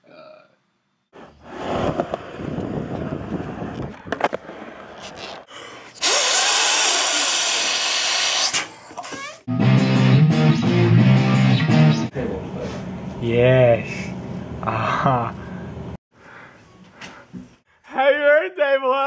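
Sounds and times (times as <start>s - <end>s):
skateboard rolling: 1.2s - 5.5s
person blowing into balloon: 6.0s - 9.4s
balloon squeaks: 6.0s - 9.5s.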